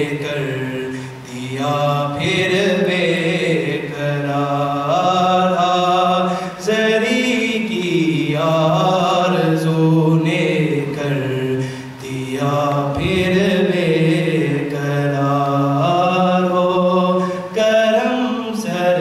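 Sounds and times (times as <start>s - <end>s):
man chanting: 0.0s - 19.0s
man breathing: 0.9s - 1.3s, 11.6s - 12.0s.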